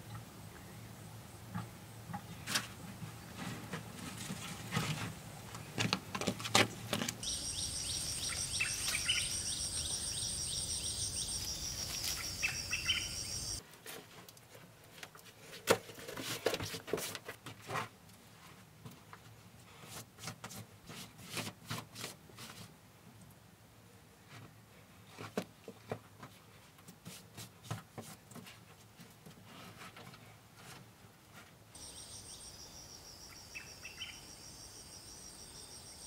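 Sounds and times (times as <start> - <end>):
insects trilling: 7.2 - 13.6, 31.8 - 36.0
short bird chirps: 7.2 - 13.6.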